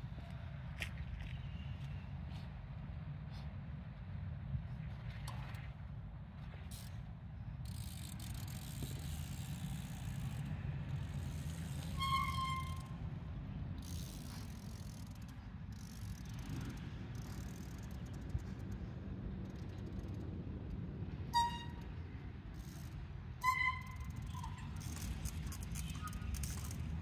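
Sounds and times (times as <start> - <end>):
short high squeal: 11.8 - 13.0, 21.4 - 21.9, 23.4 - 25.2.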